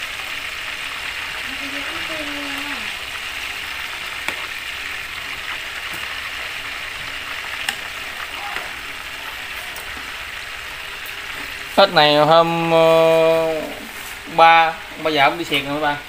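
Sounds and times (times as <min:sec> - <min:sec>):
food sizzling in hot oil: 0:00.0 - 0:16.0
metal tongs clicking on pan: 0:07.6 - 0:07.9.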